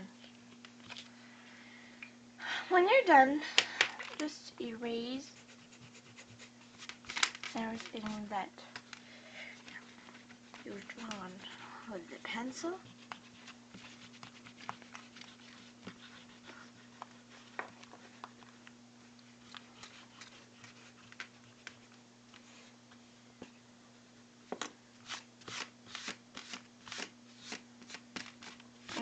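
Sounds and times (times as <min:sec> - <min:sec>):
low steady hum: 0:00.0 - 0:29.0
eraser rubbing on paper: 0:05.2 - 0:08.3, 0:09.6 - 0:18.1, 0:19.4 - 0:21.9.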